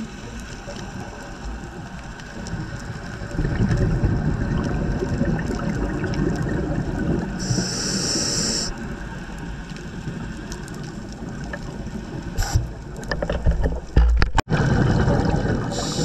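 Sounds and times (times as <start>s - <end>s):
exhaled air bubbling underwater: 0.0s - 13.2s, 14.5s - 16.0s
regulator breath hiss: 7.4s - 8.8s, 12.4s - 12.6s, 15.7s - 16.0s.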